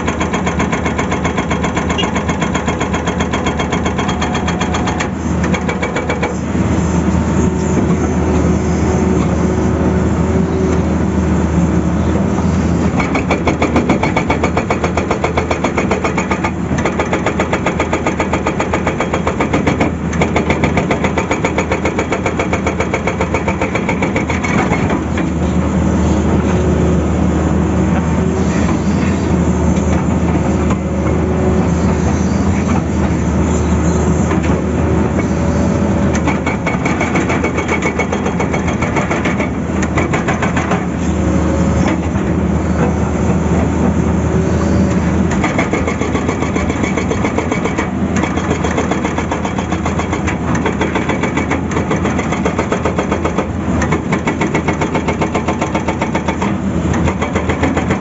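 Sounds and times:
hydraulic breaker hammering rock: 0.0s - 6.4s, 12.9s - 25.3s, 36.1s - 41.0s, 45.3s - 58.0s
diesel engine running: 0.0s - 58.0s.

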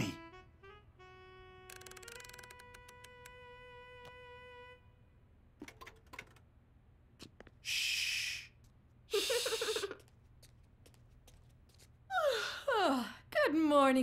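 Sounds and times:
faint clicks: 1.7s - 3.4s
children giggling: 9.1s - 10.0s.

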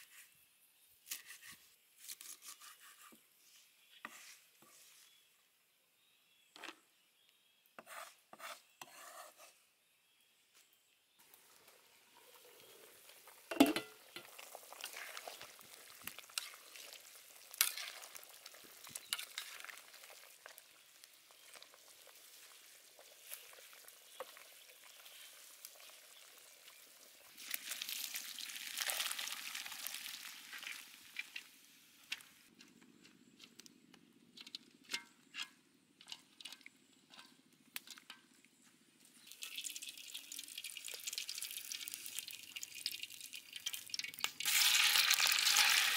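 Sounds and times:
broth crackling and bubbling: 11.2s - 25.1s, 39.2s - 44.8s
metal lid clank: 13.5s - 14.0s
oil pouring into wok: 39.2s - 45.9s.

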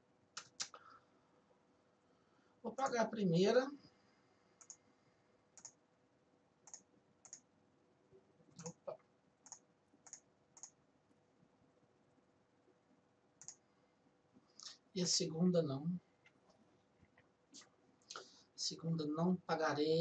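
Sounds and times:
faint hum: 0.0s - 20.0s
computer mouse clicks: 4.6s - 4.8s, 5.6s - 5.8s, 6.6s - 7.5s, 8.5s - 10.8s, 13.4s - 13.6s.

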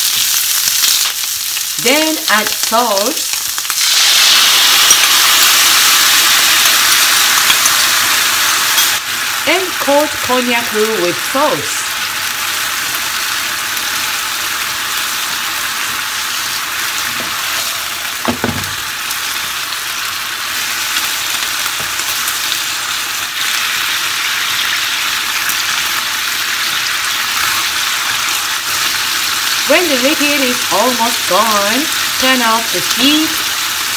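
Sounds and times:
food sizzling in a frying pan: 0.0s - 33.9s.

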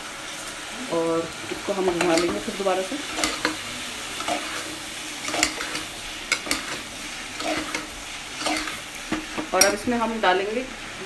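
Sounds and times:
vegetables sizzling in oil: 0.0s - 11.0s
spoon scraping metal pot: 1.6s - 9.9s.

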